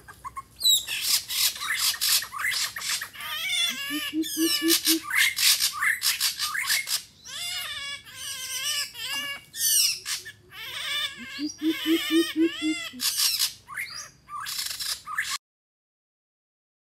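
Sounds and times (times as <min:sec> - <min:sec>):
shrill wavering bird calls: 0:00.2 - 0:15.4
deep bird hoots: 0:03.7 - 0:05.1, 0:11.2 - 0:13.0.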